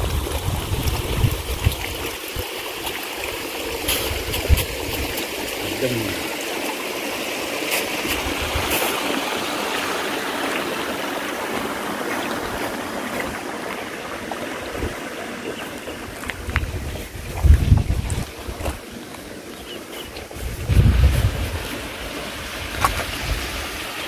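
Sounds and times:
stream flowing: 0.0s - 24.0s.

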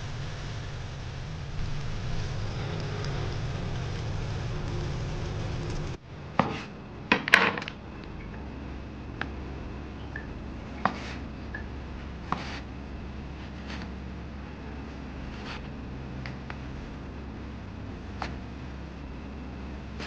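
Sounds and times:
food deep-frying in oil: 0.0s - 6.0s.

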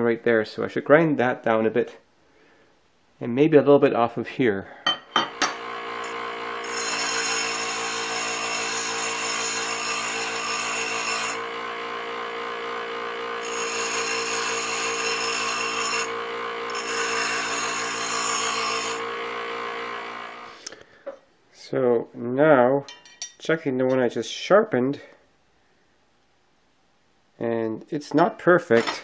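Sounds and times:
grinder motor hum: 5.2s - 20.7s
knife grinding on stone: 6.7s - 11.4s, 13.4s - 19.0s.

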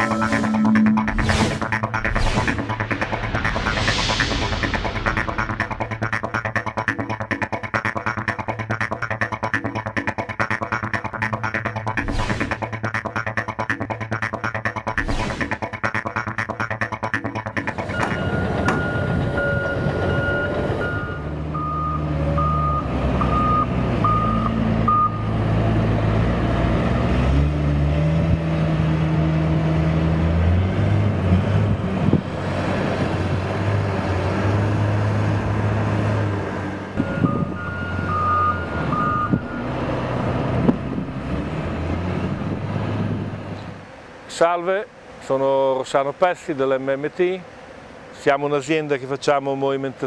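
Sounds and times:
diesel engine running under work: 17.4s - 44.2s
reversing alarm beeps: 17.8s - 25.3s, 37.0s - 39.7s.

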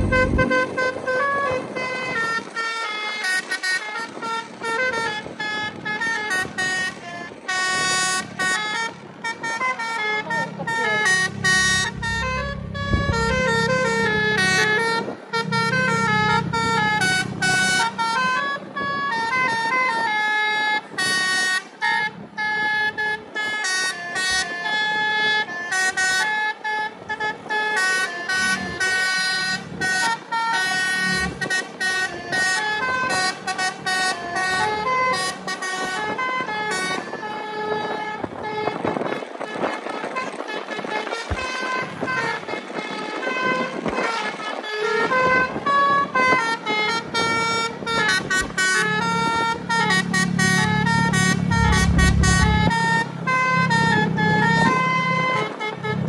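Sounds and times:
low drone: 0.0s - 0.9s, 11.4s - 14.4s, 51.2s - 52.8s
bus horn playing a melody: 0.0s - 56.0s.

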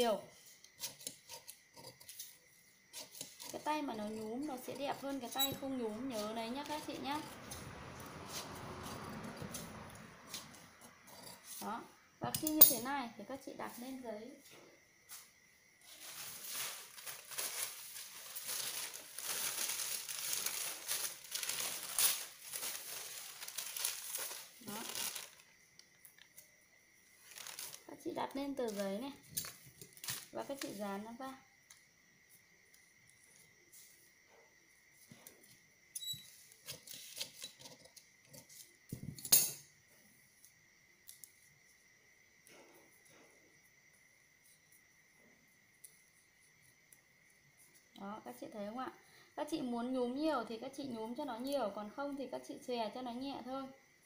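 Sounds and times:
paper rustling and crinkling: 15.8s - 25.5s, 27.2s - 27.9s, 29.4s - 30.8s.

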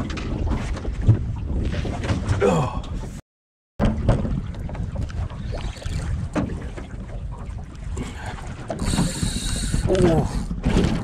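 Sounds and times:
choppy water: 0.0s - 3.2s, 3.8s - 11.0s
wind buffeting microphone: 3.8s - 11.0s.

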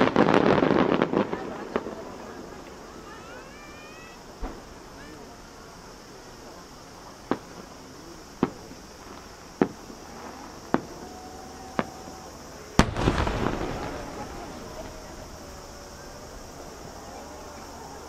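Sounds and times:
crackling rumbling firework tail: 0.0s - 18.0s
firework shells bursting: 4.3s - 5.1s, 7.2s - 11.1s, 11.8s - 17.0s
loud firework boom: 4.4s - 5.1s, 12.8s - 16.9s.

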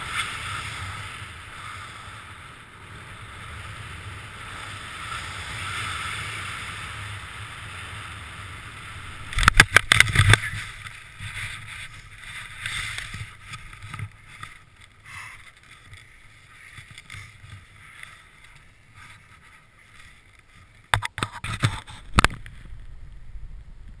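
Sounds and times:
wind rushing over microphone: 0.0s - 14.5s, 20.9s - 24.0s.

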